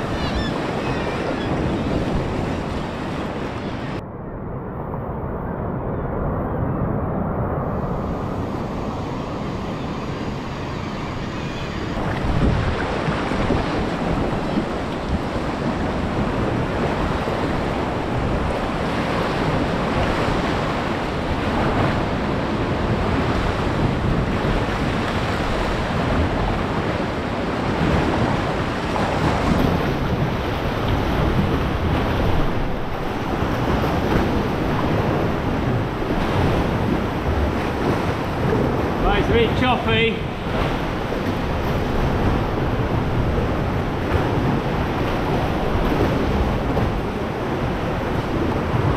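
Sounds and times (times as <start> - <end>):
wind buffeting microphone: 0.0 - 48.9
surf breaking against cliffs: 11.9 - 48.9.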